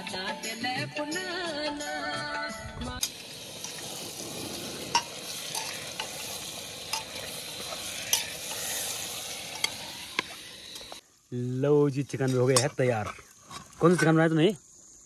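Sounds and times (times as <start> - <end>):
folk song with singing: 0.0 - 5.0
chicken sizzling in a pot: 3.0 - 14.8
steel ladle clinking against pot: 4.9 - 6.2.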